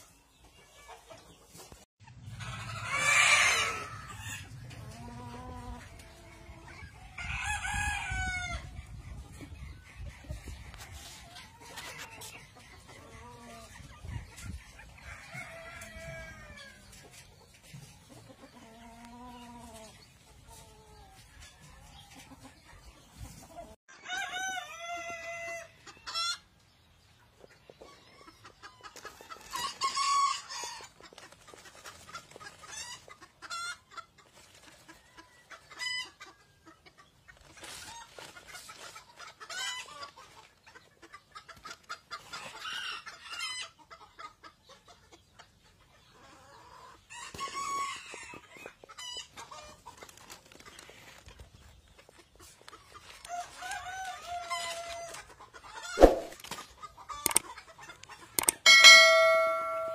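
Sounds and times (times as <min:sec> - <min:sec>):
chickens clucking: 0:00.0 - 0:59.9
rooster crowing loudly: 0:02.5 - 0:04.4, 0:07.2 - 0:08.6, 0:24.0 - 0:25.7.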